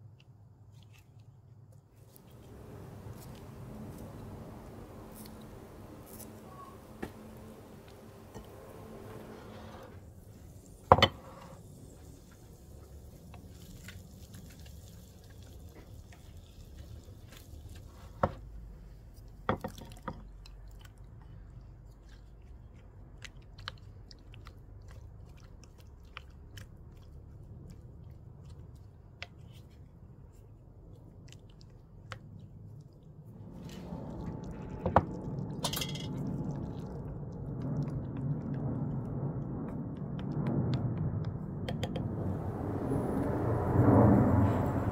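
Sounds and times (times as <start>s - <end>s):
wet cutting and squishing tomatoes: 0.0s - 41.9s
low steady noise: 2.0s - 19.4s.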